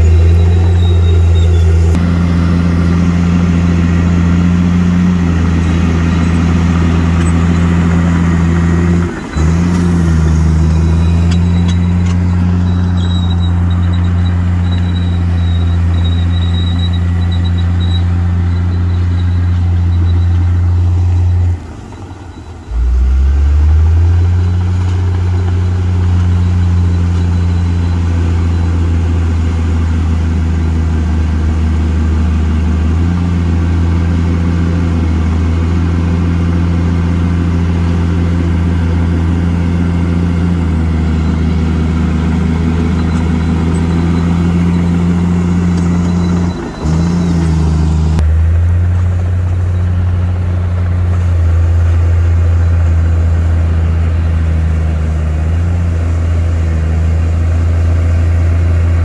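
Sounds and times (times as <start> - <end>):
blade pushing soil and rock: 0.0 - 22.9
bulldozer diesel engine droning: 0.0 - 59.0.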